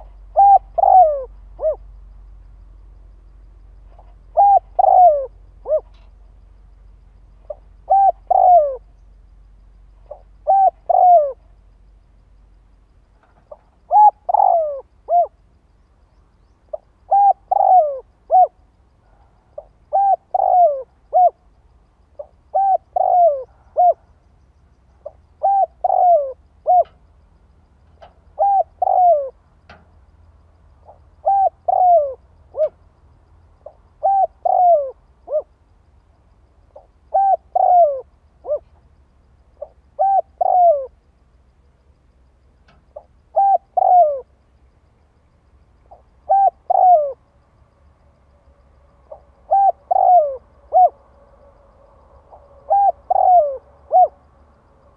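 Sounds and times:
dove cooing: 0.0 - 1.9, 4.0 - 6.1, 7.4 - 9.0, 10.0 - 11.5, 13.4 - 15.4, 16.7 - 21.5, 22.2 - 24.2, 25.0 - 27.0, 28.0 - 29.4, 30.8 - 32.8, 33.6 - 35.6, 36.7 - 38.7, 39.6 - 41.0, 43.0 - 44.3, 45.9 - 47.3, 49.1 - 54.2.

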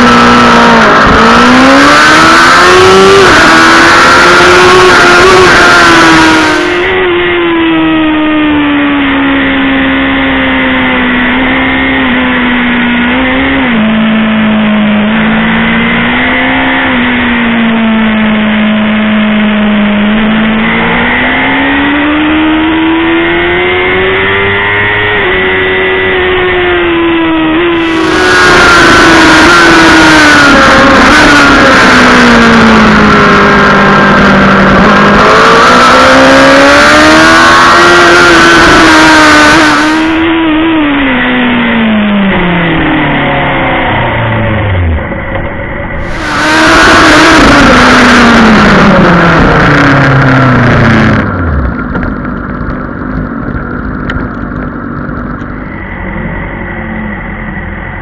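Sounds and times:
motorbike engine at high revs: 0.0 - 58.0
wind rush: 43.3 - 54.1.

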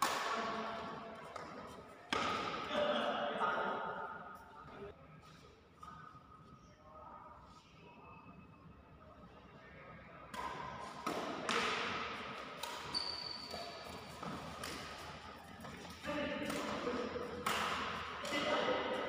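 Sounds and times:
rackets hitting shuttlecock: 0.0 - 2.9, 10.3 - 19.0
sneaker squeak on court: 12.6 - 14.3.

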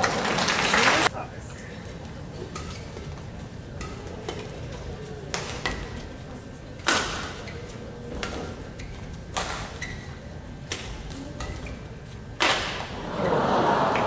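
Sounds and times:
crowd murmur: 0.0 - 8.8, 10.2 - 14.0
racket striking shuttlecock: 3.8 - 6.0, 6.8 - 8.6, 9.3 - 11.8, 12.4 - 13.0.

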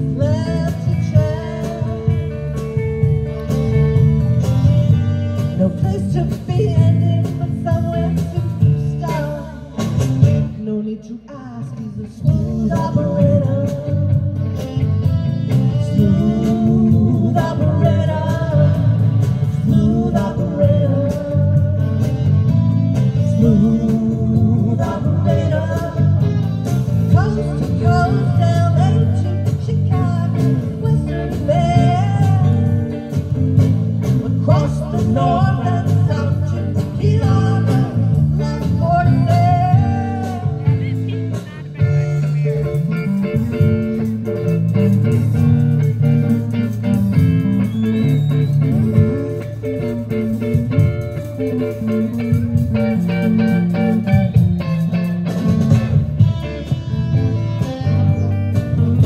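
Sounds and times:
woman singing: 0.0 - 3.4, 5.4 - 14.4, 15.8 - 21.9, 23.3 - 26.3, 27.1 - 32.9, 34.2 - 42.3
live rock band playing: 0.0 - 59.0.

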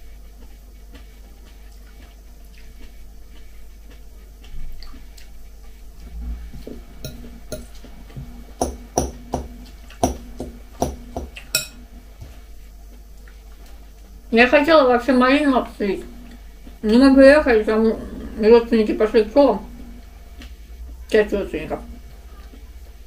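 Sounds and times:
chewing salad: 0.0 - 14.2, 16.0 - 23.0
fork clinking against glass bowl: 7.1 - 7.8, 11.4 - 11.8.

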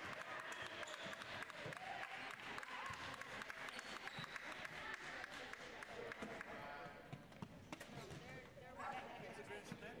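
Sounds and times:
spectators clapping: 0.0 - 6.6.

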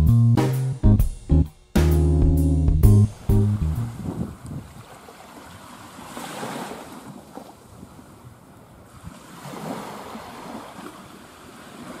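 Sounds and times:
sea waves washing onto shore: 3.1 - 12.0.

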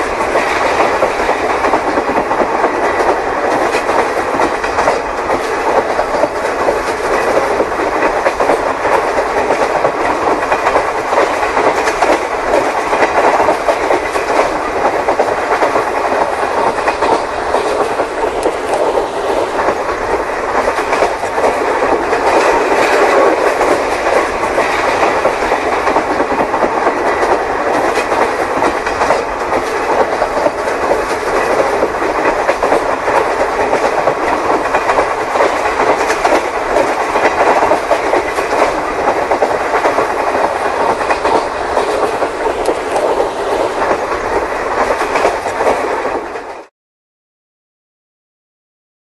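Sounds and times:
model train wheels rattling on track: 0.0 - 46.6.

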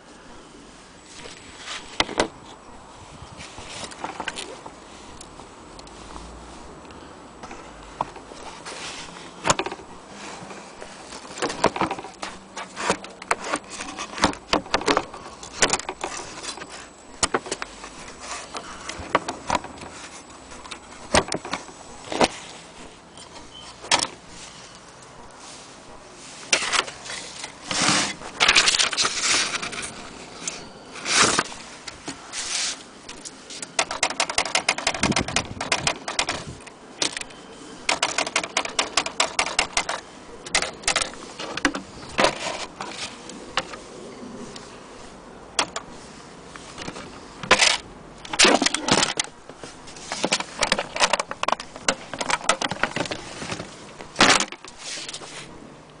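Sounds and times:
typewriter key clacks: 33.8 - 36.4.

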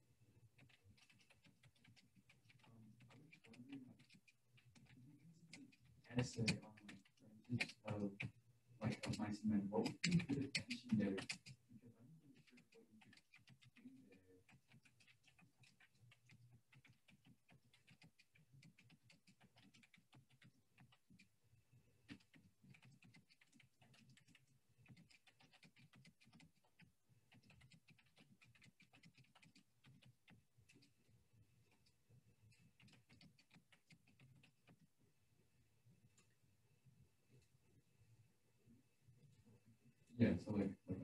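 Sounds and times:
typing on computer keyboard: 0.6 - 11.6, 12.4 - 21.3, 22.0 - 31.0, 31.6 - 34.9.

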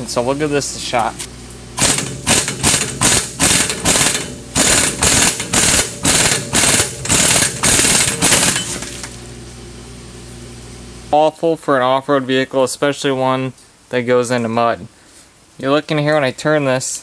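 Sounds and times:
pneumatic impact wrench bursts: 1.8 - 9.1.

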